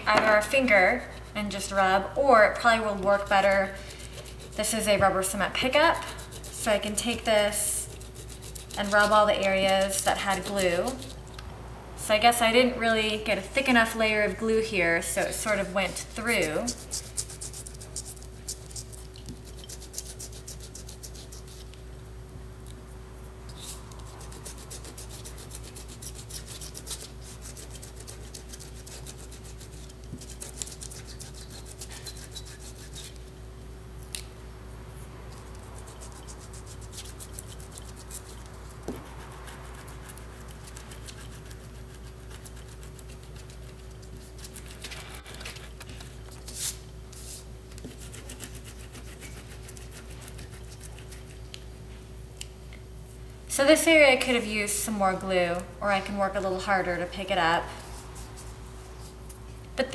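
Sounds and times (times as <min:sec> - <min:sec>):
steady electrical hum: 0:00.0 - 0:59.9
rubbing and scratching on paper: 0:02.8 - 0:11.2, 0:15.2 - 0:21.8, 0:23.6 - 0:33.3, 0:35.7 - 0:51.6.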